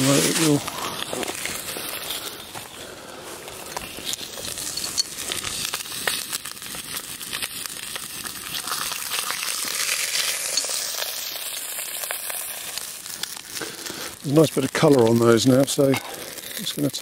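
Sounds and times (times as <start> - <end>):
meat sizzling in a pot: 0.0 - 17.0
oil drizzling into pot: 3.9 - 17.0.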